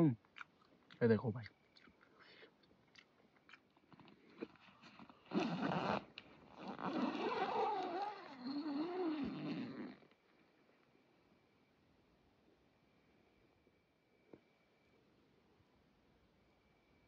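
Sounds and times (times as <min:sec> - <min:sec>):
tent zipper rasping: 0:04.5 - 0:10.2
tent flap rustling: 0:04.6 - 0:10.0.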